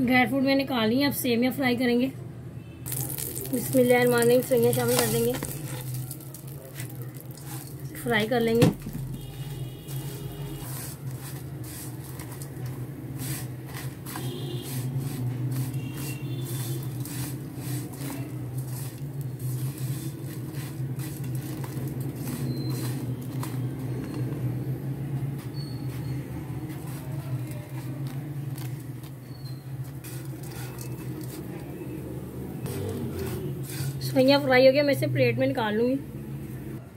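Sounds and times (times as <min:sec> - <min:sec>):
spatula scraping a pan: 0:09.2 - 0:24.3, 0:25.4 - 0:31.7, 0:32.7 - 0:34.5.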